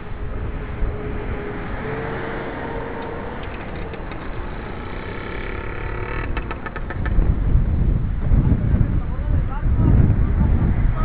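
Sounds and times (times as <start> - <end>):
cars driving by: 0.0 - 7.2
quick run of clicks: 3.0 - 7.3.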